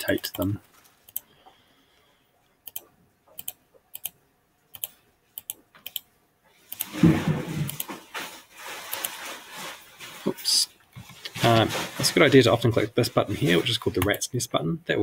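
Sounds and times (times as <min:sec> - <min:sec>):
computer mouse clicking: 0:02.6 - 0:06.1
rustling rubbing noise: 0:06.9 - 0:14.0.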